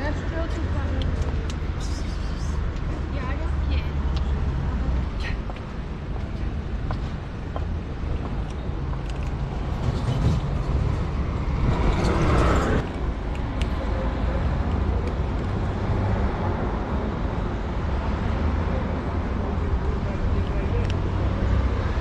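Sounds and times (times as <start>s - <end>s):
street traffic rumble: 0.0s - 22.0s
vehicle passing: 9.5s - 13.2s.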